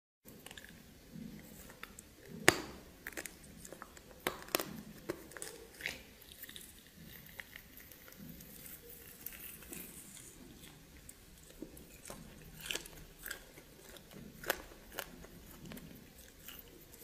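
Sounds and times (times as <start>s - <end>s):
person chewing with crunches: 0.3s - 17.0s.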